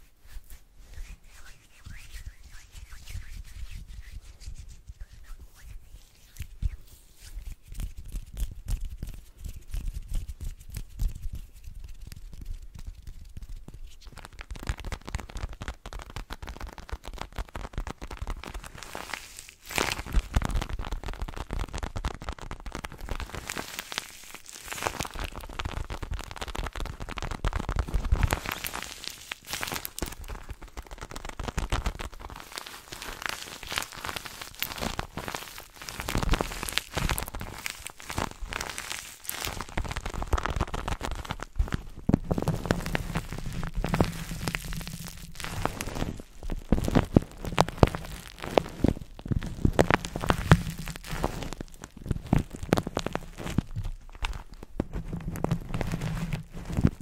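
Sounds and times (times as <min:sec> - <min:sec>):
hands rubbing: 0:00.0 - 0:17.2, 0:32.2 - 0:53.6
paper being crumpled: 0:11.9 - 0:57.0.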